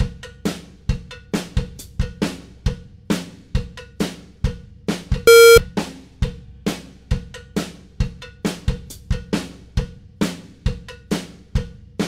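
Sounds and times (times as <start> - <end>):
loud electronic beep: 5.3 - 5.6
upbeat drum-driven music: 5.3 - 5.6.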